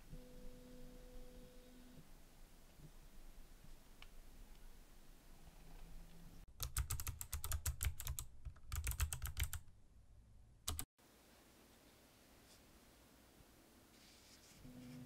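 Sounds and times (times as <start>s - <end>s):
rapid typing on computer keyboard: 6.6s - 9.6s, 10.7s - 10.9s.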